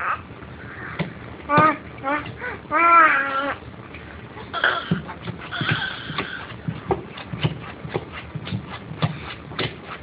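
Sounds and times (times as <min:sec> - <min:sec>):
baby vocalizing: 0:00.0 - 0:03.6, 0:04.5 - 0:06.5
hands patting drum head: 0:04.6 - 0:10.0.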